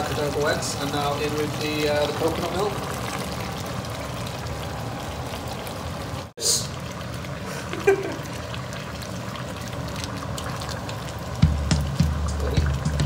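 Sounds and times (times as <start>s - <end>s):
liquid pouring into a pan: 0.0s - 12.0s
pan simmering with bubbling hiss: 0.0s - 13.0s.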